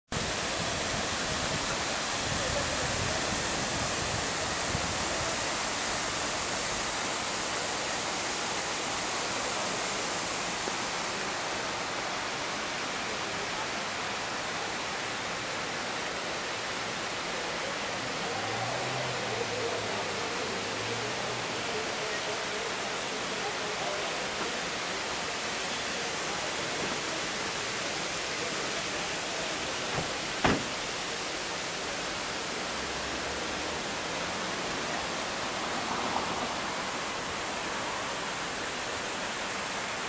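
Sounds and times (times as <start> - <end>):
fountain water splashing: 0.1 - 40.0.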